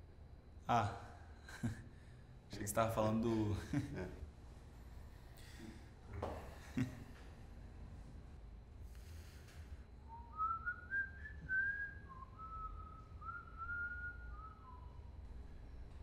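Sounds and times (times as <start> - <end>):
low room hum: 0.0 - 16.0
person whistling a tune: 10.1 - 15.1.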